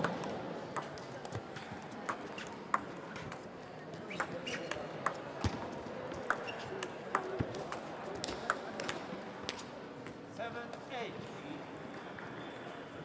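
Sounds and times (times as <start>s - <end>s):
murmur of large hall: 0.0s - 13.0s
table tennis ball clicking: 2.1s - 3.4s, 6.2s - 9.0s.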